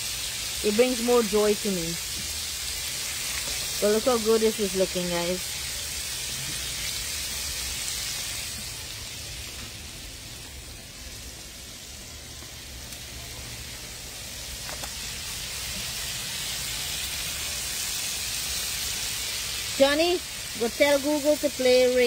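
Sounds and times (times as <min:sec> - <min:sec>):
chicken deep-frying in oil: 0:00.0 - 0:22.0.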